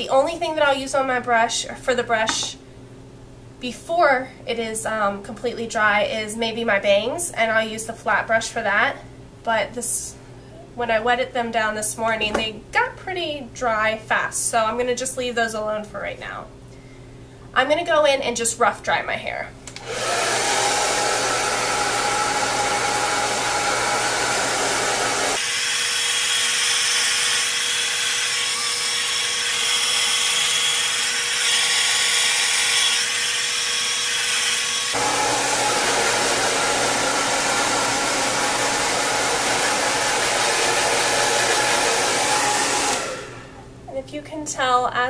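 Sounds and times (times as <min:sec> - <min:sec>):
blow dryer running: 0:19.7 - 0:43.7.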